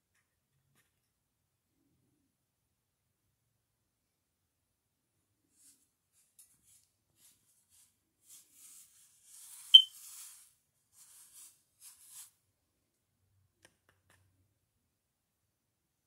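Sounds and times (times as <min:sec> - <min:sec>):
paintbrush strokes on paper: 0:05.4 - 0:12.4.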